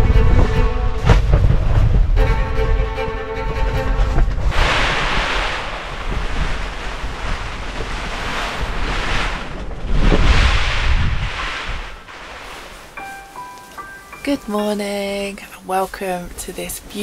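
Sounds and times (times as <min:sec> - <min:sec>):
strong gusty wind: 0:00.0 - 0:13.0
wind rumble on microphone: 0:00.0 - 0:13.0.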